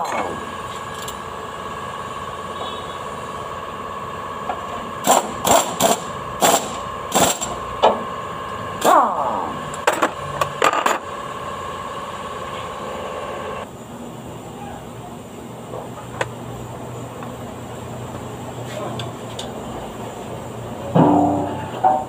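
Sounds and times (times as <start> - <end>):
steady machine hum: 0.0 - 22.0
pneumatic impact wrench bursts: 5.0 - 7.6.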